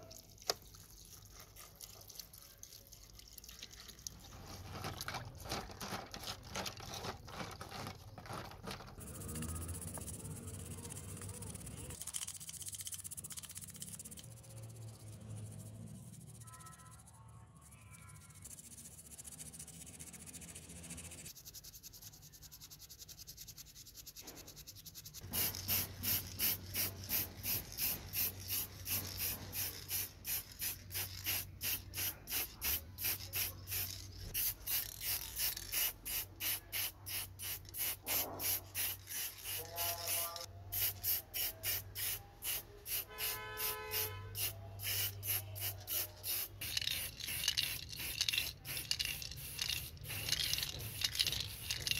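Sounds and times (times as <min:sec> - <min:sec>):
spray can ball rattling: 0:04.0 - 0:15.5, 0:24.6 - 0:51.9.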